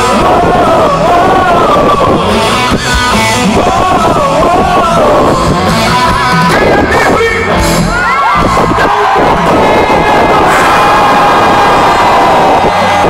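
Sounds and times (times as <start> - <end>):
person singing: 0.0 - 7.2
rock band playing: 0.0 - 13.0.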